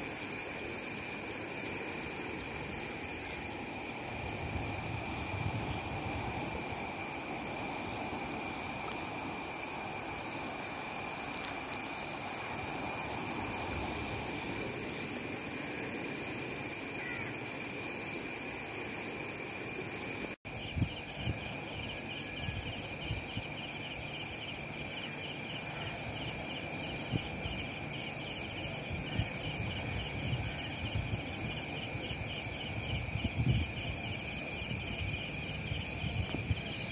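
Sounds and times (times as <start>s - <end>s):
high-pitched insect trills: 0.0s - 36.9s
rapidly pulsing insect call: 0.0s - 36.9s.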